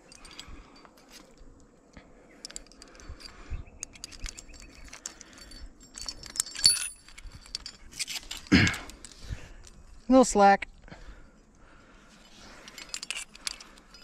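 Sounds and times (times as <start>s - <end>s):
climbing hardware clinking: 0.0s - 14.0s
ringing metallic clink: 2.4s - 8.8s.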